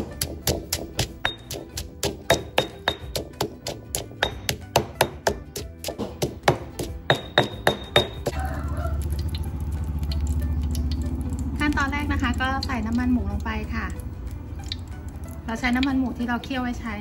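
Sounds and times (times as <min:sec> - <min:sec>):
pestle pounding in mortar: 0:00.0 - 0:08.5.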